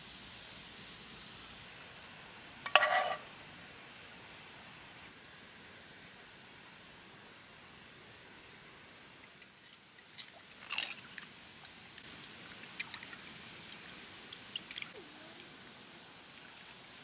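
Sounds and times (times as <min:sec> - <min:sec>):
cutlery clinking and scraping in water: 0:02.7 - 0:03.2.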